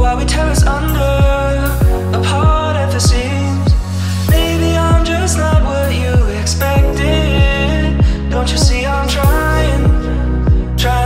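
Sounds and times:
pop song with deep kick drum: 0.0 - 11.0.

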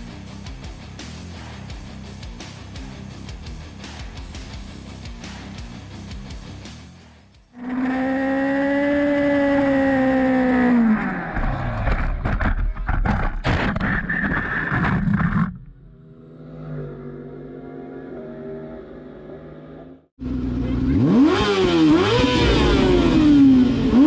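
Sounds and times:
motorcycle engine running hard: 7.6 - 11.4, 15.9 - 24.0
motorcycle scraping along track: 7.6 - 12.9, 15.0 - 20.0.

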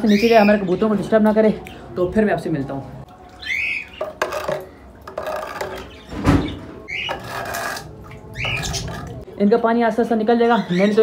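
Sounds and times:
floor wiper scraping water: 3.3 - 9.2.

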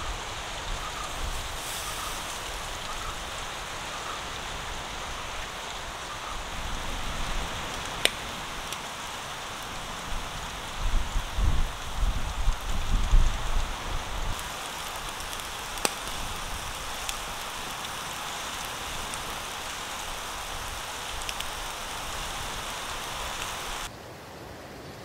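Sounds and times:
meat sizzling on coals: 0.0 - 23.9
crackling pops: 7.5 - 11.9, 14.3 - 23.9.

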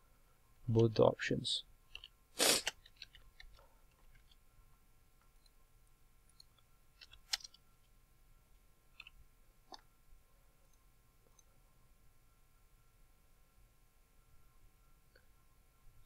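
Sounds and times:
keyboard and mouse clicks: 6.4 - 7.6.

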